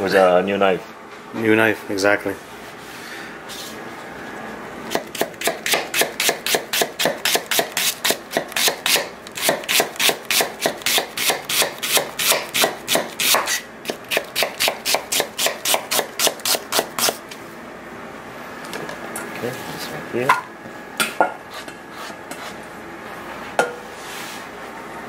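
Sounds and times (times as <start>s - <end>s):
knife slicing onion on board: 4.9s - 17.2s, 21.5s - 22.6s.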